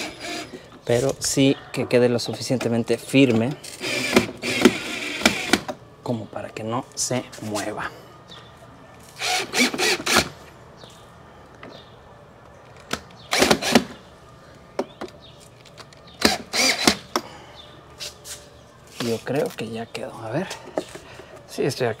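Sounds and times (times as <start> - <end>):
cordless drill driving screws: 3.7 - 5.7, 9.2 - 10.3, 16.2 - 17.0.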